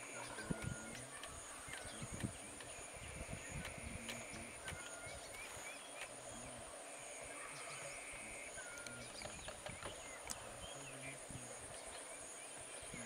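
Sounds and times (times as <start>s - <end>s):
bird chirps: 0.0s - 6.6s, 7.2s - 13.0s
insect trill: 0.0s - 13.0s
sharp clicks: 3.5s - 6.2s.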